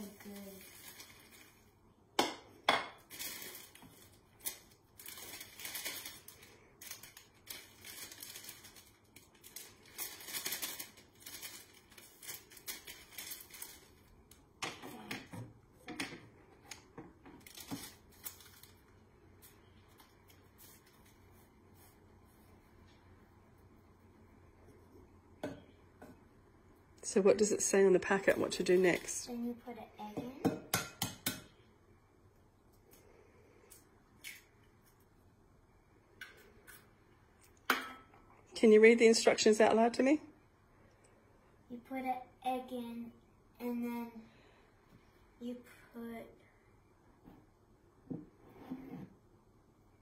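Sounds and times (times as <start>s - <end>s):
plastic packet crinkling: 3.0s - 14.4s, 17.4s - 19.1s.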